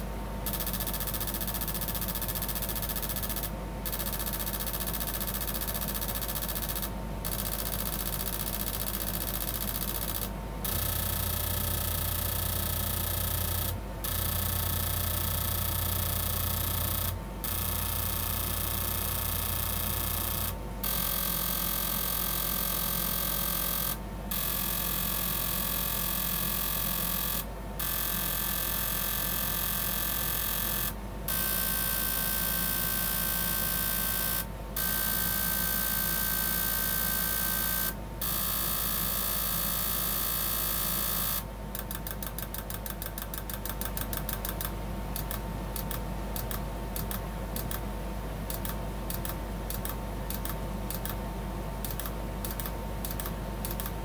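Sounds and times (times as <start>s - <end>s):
injector clicks: 41.8s - 47.8s, 48.5s - 51.2s, 51.8s - 54.0s.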